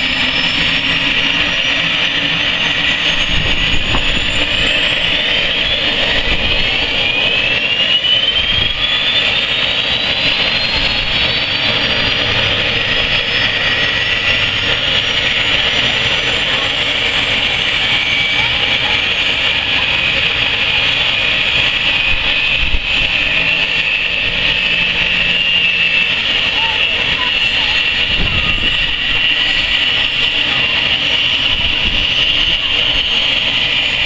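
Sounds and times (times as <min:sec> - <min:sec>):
helicopter turbine engine whine: 0:00.0 - 0:34.0.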